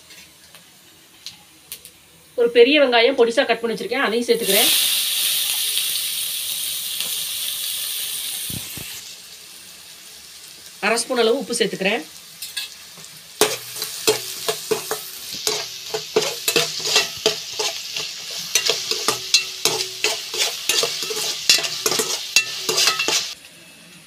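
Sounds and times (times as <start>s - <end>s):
onion sizzling in hot oil: 0.0s - 23.8s
spatula scraping and tapping pan: 12.4s - 23.4s.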